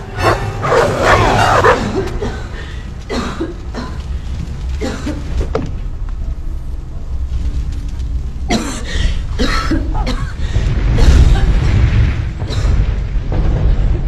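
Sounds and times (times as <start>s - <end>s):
woman coughing: 8.5s - 10.4s.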